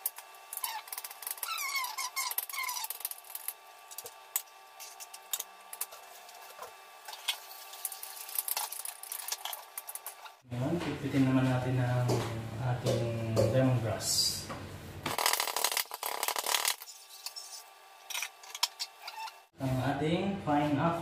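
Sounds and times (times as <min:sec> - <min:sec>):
high squeaks falling in pitch: 0:00.6 - 0:03.0.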